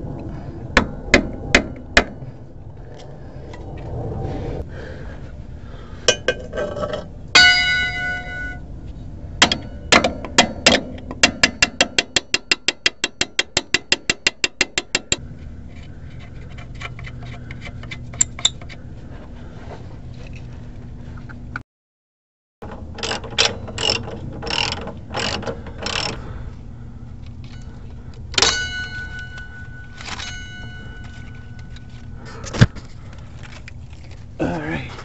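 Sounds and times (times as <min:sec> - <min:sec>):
metallic clang: 0:06.1 - 0:08.6, 0:09.4 - 0:13.8, 0:28.3 - 0:32.0
wrench ratchet clicks: 0:23.0 - 0:26.2.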